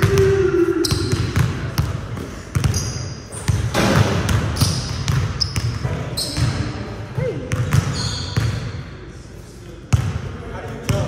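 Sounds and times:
basketballs bouncing on hardwood: 0:00.0 - 0:02.8, 0:03.5 - 0:06.6
short high squeaks: 0:07.9 - 0:08.4.

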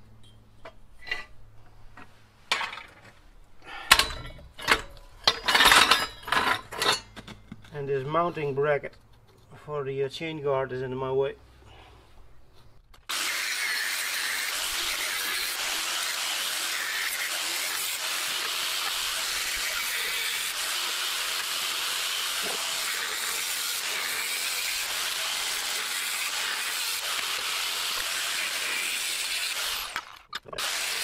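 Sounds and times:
angle grinder cutting metal: 0:13.1 - 0:31.0.

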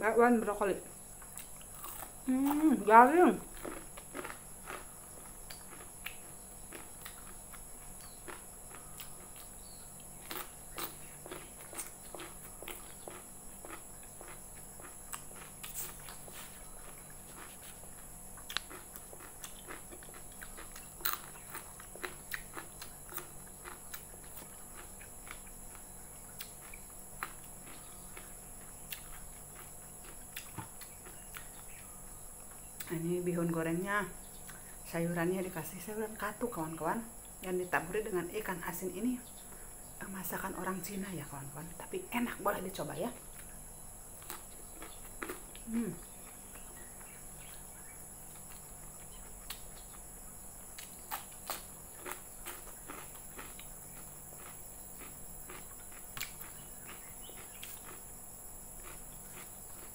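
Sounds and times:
faint steady hum: 0:00.0 - 0:59.9
closed-mouth chewing: 0:01.2 - 0:02.7, 0:03.5 - 0:31.9, 0:44.2 - 0:47.6, 0:50.8 - 0:58.1, 0:58.8 - 0:59.9
crisp crunches of cucumber: 0:01.3 - 0:02.6, 0:03.5 - 0:31.7, 0:44.2 - 0:46.7, 0:50.7 - 0:58.1, 0:58.8 - 0:59.9
fingers picking through food: 0:50.8 - 0:53.7.

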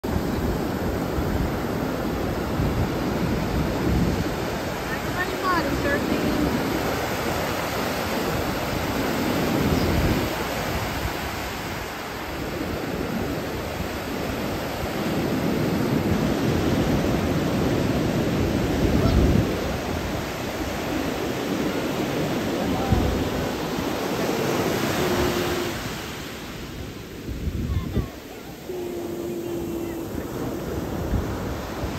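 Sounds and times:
ocean surf breaking: 0:00.0 - 0:31.9.

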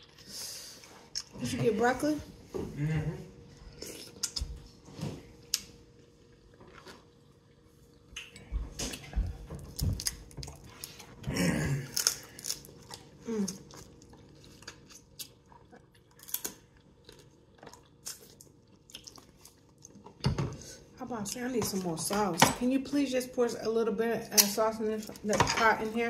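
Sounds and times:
crab shells cracking: 0:11.9 - 0:13.1.

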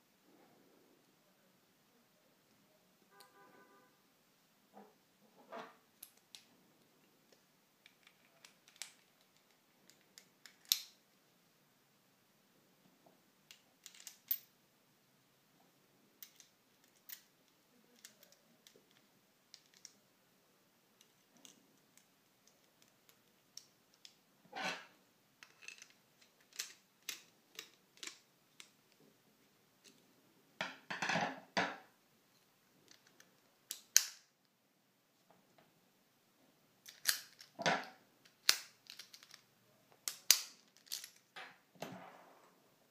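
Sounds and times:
padlock metallic clicks and taps: 0:07.8 - 0:11.0, 0:32.9 - 0:34.2, 0:38.2 - 0:39.4, 0:40.0 - 0:41.2
padlock rattling scrapes: 0:24.6 - 0:28.2, 0:40.1 - 0:41.4.

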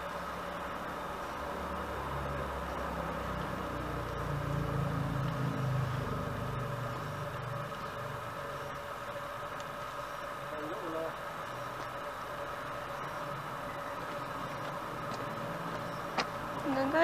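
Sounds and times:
low engine rumble: 0:00.0 - 0:17.0
steady hum: 0:00.0 - 0:17.0.

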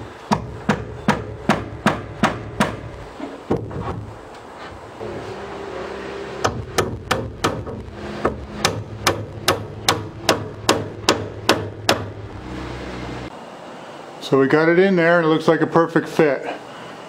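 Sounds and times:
steady low hum: 0:00.0 - 0:15.2
hammer driving a nail into wood: 0:00.3 - 0:02.9, 0:06.4 - 0:12.2.

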